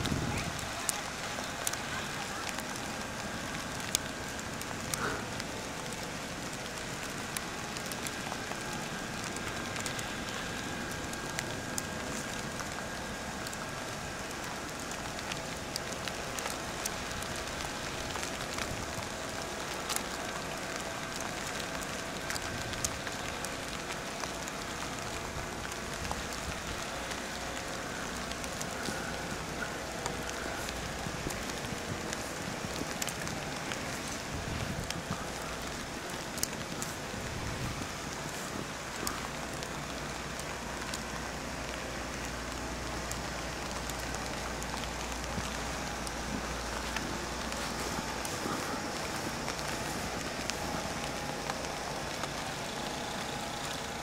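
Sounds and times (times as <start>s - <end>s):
light ticks: 6.7s - 37.0s.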